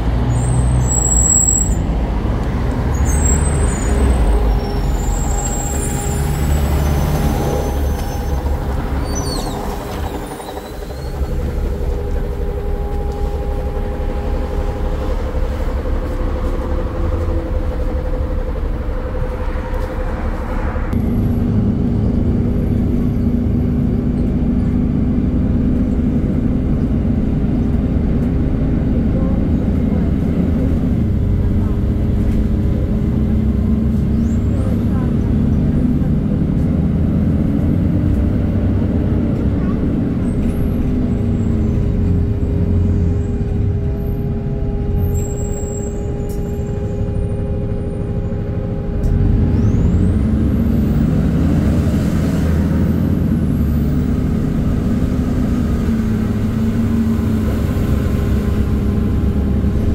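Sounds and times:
bus engine running: 0:00.0 - 0:59.9
brake squeals and hisses: 0:00.3 - 0:01.9, 0:02.9 - 0:11.2, 0:45.0 - 0:46.8.

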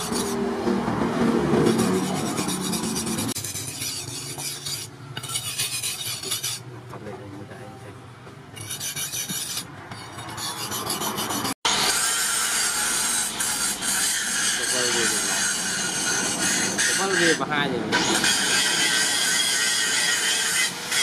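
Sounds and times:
knife sharpened on whetstone: 0:00.0 - 0:00.4, 0:01.6 - 0:06.7, 0:08.6 - 0:11.6.

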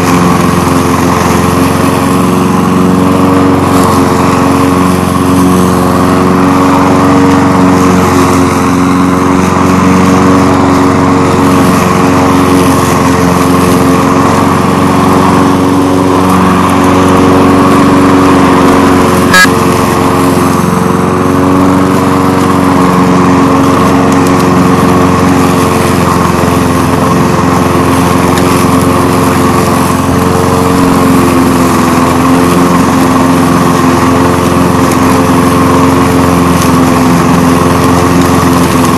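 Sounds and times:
lawn mower engine running: 0:00.0 - 0:38.9.

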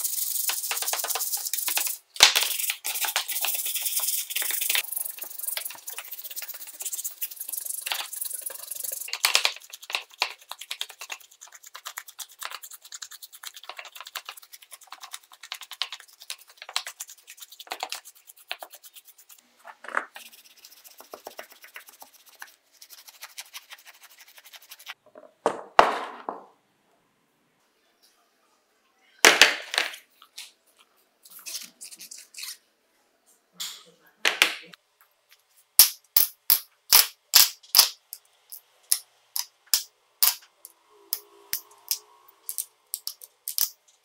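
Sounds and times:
brush scrubbing plastic in water: 0:00.0 - 0:19.4.

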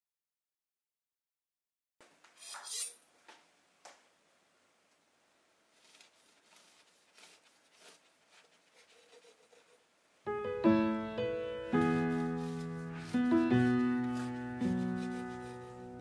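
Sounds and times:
piano music: 0:10.2 - 0:16.0.

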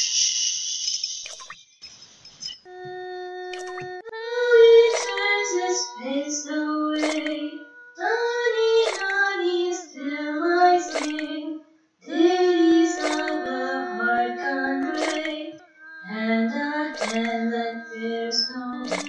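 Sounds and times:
woman singing in harmony: 0:02.7 - 0:19.0
sharp short click: 0:10.9 - 0:11.3, 0:13.0 - 0:13.4.

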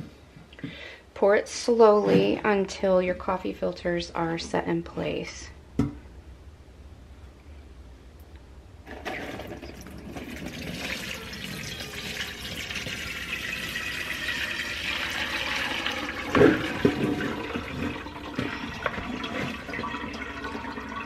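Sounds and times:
broth pouring and splashing: 0:08.9 - 0:21.0.

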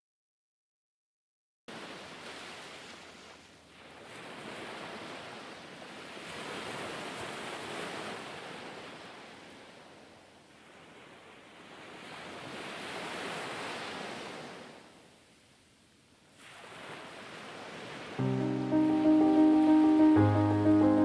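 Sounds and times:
sea waves washing: 0:16.4 - 0:21.0.

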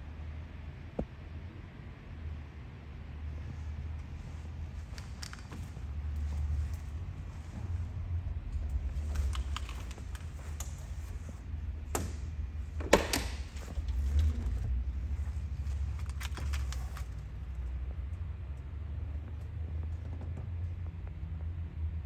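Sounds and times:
low rumble: 0:02.1 - 0:22.0.

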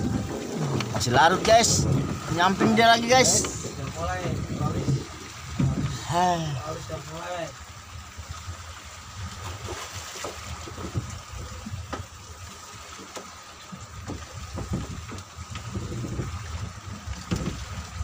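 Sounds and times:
steady low rumble: 0:00.0 - 0:02.5
water slapping against hull: 0:00.0 - 0:18.0.

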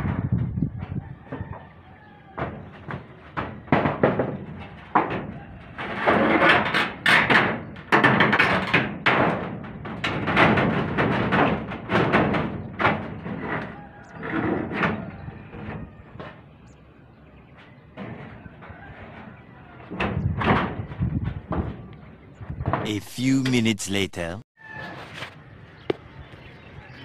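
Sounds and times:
metal roofing sheets banging: 0:00.0 - 0:16.6, 0:17.5 - 0:21.9.

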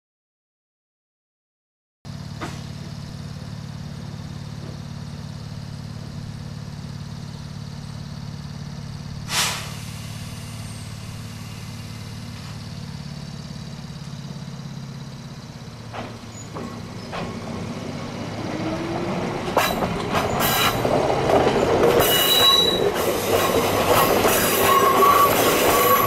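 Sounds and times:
electric train humming: 0:02.1 - 0:26.0
compressed air hiss: 0:09.2 - 0:12.6.

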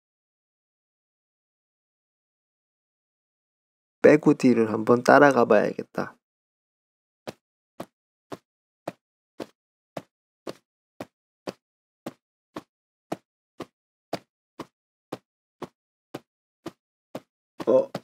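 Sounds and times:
cartoon footstep taps: 0:07.3 - 0:15.2.

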